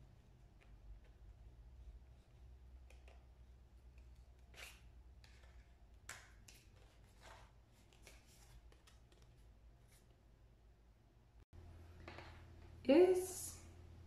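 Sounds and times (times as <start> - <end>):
low steady hum: 9.1 - 14.0.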